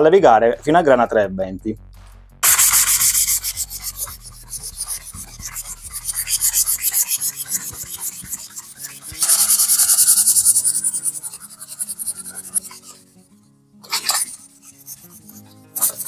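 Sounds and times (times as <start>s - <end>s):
sandpaper rubbing on wood: 2.4s - 13.0s, 13.9s - 16.0s.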